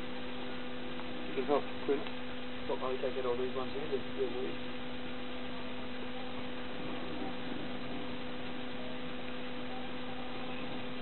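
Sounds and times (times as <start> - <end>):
steady electrical hum: 0.0 - 11.0
faint murmur of voices: 5.2 - 11.0.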